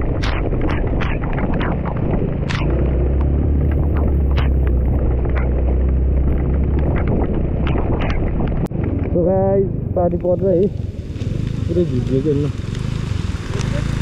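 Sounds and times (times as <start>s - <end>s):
sharp clicks and knocks: 0.0s - 9.2s
scooter engine running: 0.0s - 14.0s
wind buffeting microphone: 0.0s - 14.0s.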